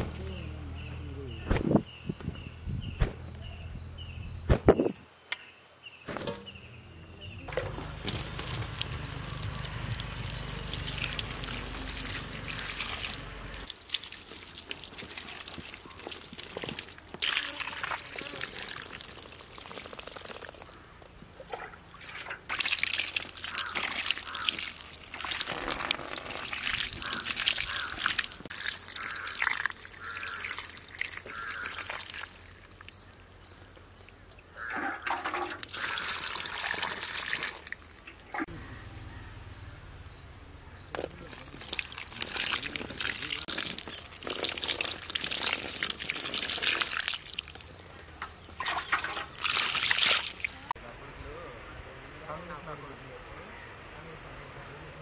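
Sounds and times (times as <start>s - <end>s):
water pouring and splashing: 7.5s - 20.8s, 21.4s - 32.9s, 34.7s - 38.4s, 41.0s - 50.8s.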